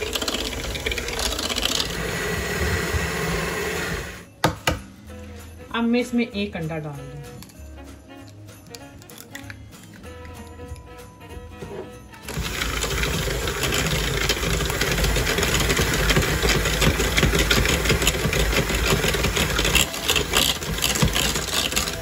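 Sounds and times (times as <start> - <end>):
beaters clattering against bowl: 0.0 - 2.0, 12.3 - 22.0
electric hand mixer running: 0.0 - 4.3, 12.2 - 22.0.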